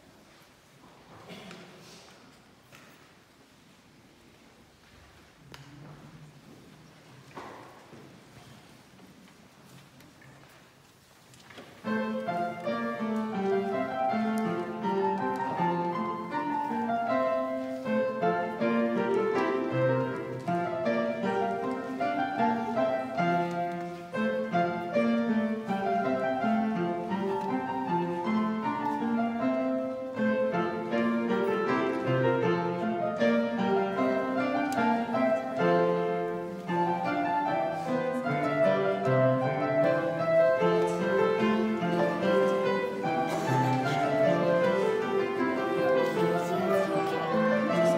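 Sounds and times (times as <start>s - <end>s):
piano playing chords: 11.9s - 47.9s.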